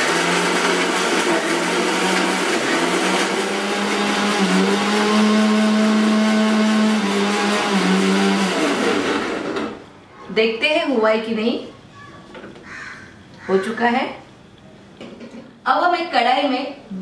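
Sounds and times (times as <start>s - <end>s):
mixer grinder motor running: 0.0s - 9.8s.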